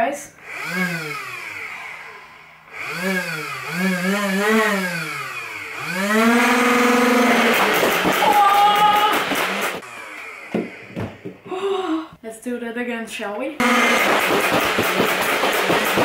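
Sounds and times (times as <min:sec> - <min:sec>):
flywheel motors whining: 0:00.4 - 0:11.5
toy blaster firing balls: 0:07.2 - 0:11.4, 0:13.6 - 0:16.0.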